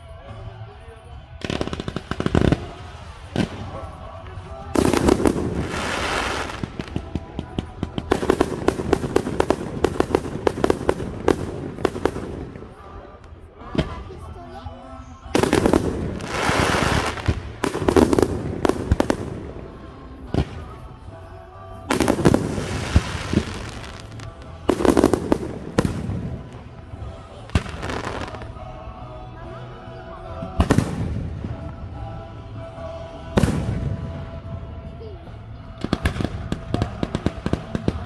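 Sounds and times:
firework crackling: 1.4s - 14.2s, 15.4s - 21.0s, 21.9s - 28.8s.

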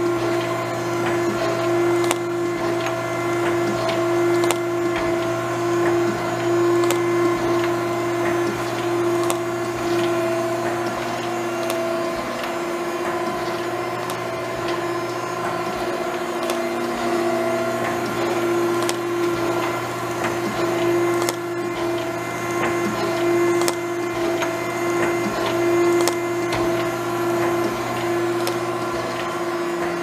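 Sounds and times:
surface grinder humming: 0.0s - 30.0s.

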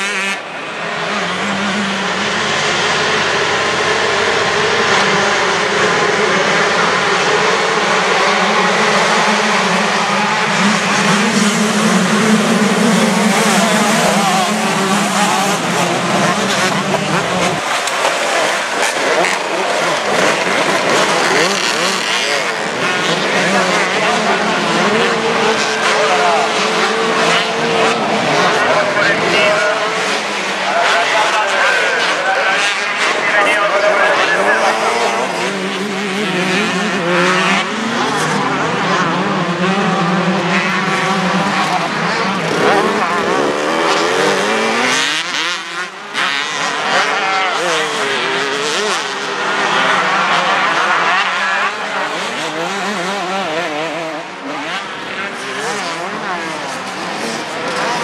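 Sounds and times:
motocross bike engines revving: 0.0s - 58.0s.

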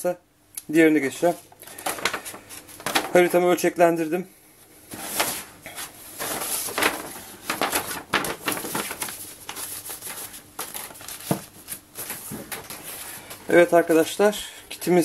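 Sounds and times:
paper rustling and crinkling: 1.2s - 3.6s, 4.9s - 14.1s.

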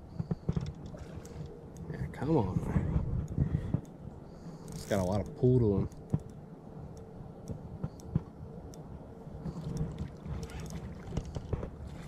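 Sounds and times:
faint steady hum: 0.0s - 12.0s
wind: 0.0s - 12.0s
water: 9.4s - 12.0s.

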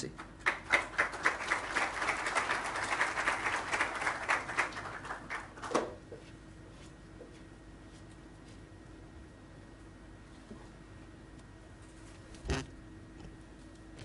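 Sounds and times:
faint steady hum: 0.0s - 14.0s
audience applauding: 0.3s - 5.9s.

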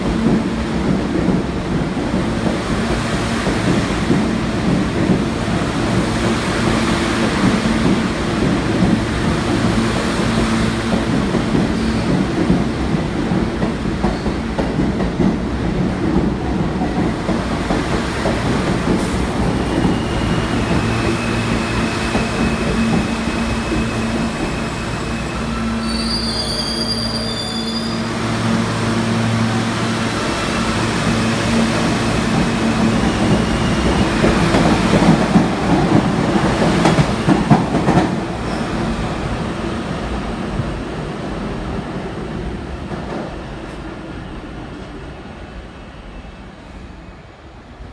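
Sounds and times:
subway train motor hum and rumble: 0.0s - 47.9s
train pulling in: 0.0s - 47.9s
high wheel squeal: 19.7s - 28.2s.

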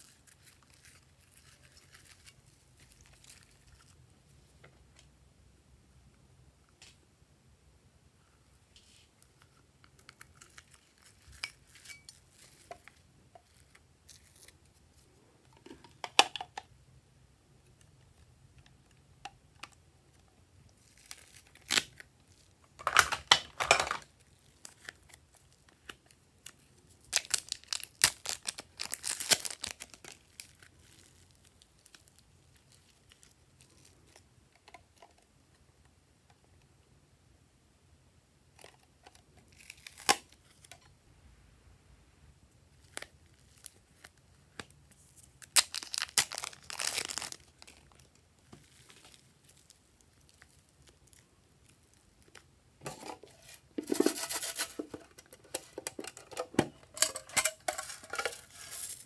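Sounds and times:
loud plastic crinkling and tearing: 0.0s - 3.9s, 20.8s - 34.1s, 39.5s - 40.7s, 42.8s - 59.0s.

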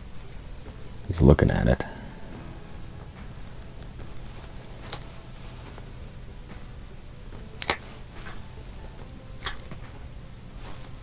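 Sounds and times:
steady low hum: 0.0s - 11.0s
sharp clicks: 7.6s - 7.9s.

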